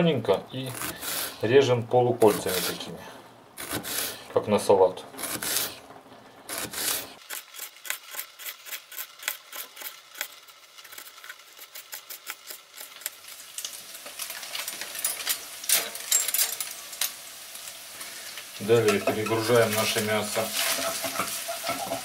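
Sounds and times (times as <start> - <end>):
chicken sizzling in a pan: 13.0 - 16.0, 16.6 - 22.0.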